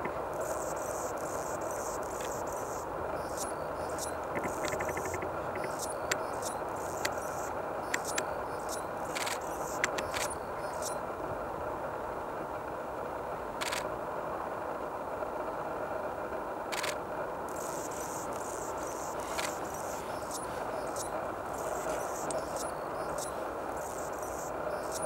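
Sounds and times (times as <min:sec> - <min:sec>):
hummingbird buzzy song: 0:00.3 - 0:11.0, 0:17.5 - 0:25.0
sharp bird ticks: 0:00.4 - 0:11.0, 0:17.5 - 0:25.0.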